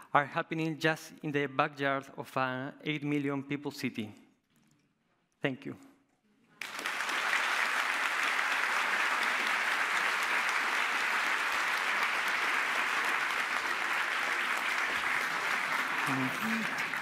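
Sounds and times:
audience applauding: 6.6s - 17.0s.

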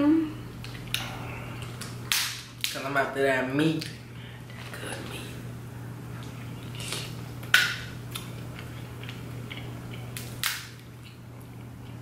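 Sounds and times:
steady low hum: 0.0s - 12.0s
crab shells cracking: 6.7s - 11.2s.

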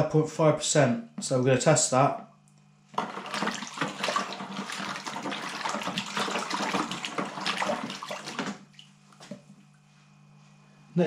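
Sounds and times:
liquid swishing and sloshing: 3.0s - 9.7s.

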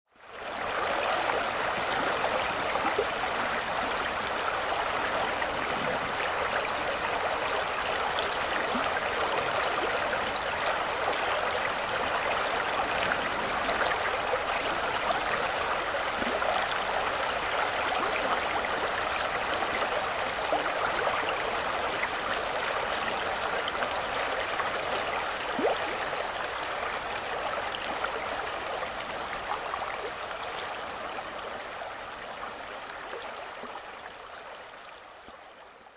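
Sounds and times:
river flowing over stones: 0.2s - 35.9s
small splashes and trickles: 11.8s - 18.6s, 25.4s - 26.4s.

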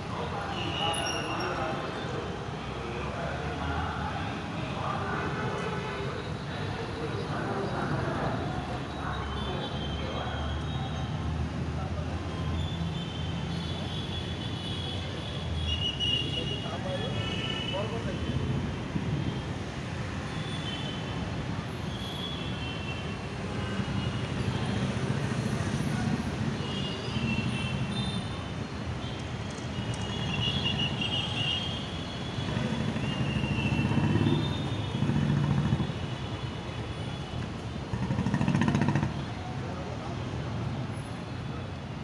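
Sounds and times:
low rumble of city traffic: 0.0s - 42.0s.

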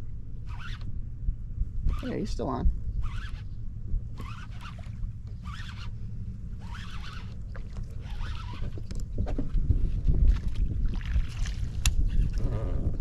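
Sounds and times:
wind rumbling on microphone: 0.0s - 13.0s
fishing reel cranking: 3.0s - 3.4s, 4.1s - 4.8s, 5.4s - 6.0s, 6.6s - 7.4s, 8.0s - 9.0s.

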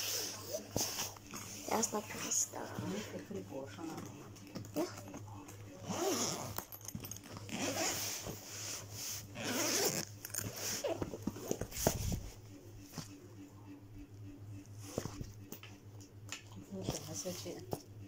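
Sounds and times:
zipper being pulled: 5.8s - 6.8s, 7.4s - 8.4s, 9.2s - 11.6s
bag handling and rustling: 5.8s - 13.0s.

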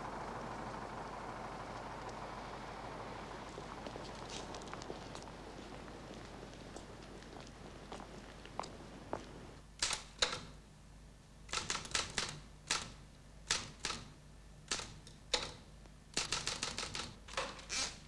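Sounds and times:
typewriter keys clacking: 11.5s - 14.1s, 16.2s - 17.2s.

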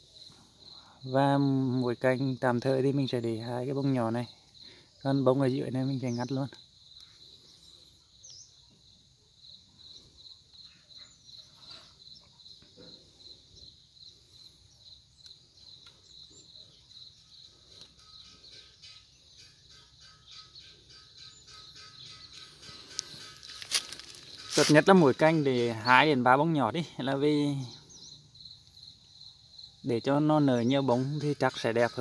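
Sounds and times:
insect chirping: 0.0s - 32.0s
rustling leaves and stems: 21.5s - 26.4s.

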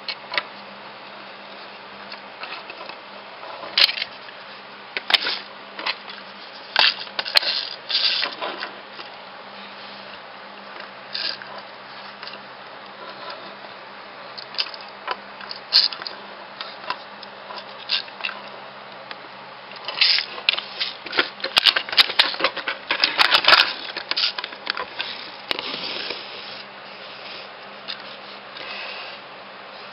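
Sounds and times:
steady low hum: 0.0s - 29.9s.

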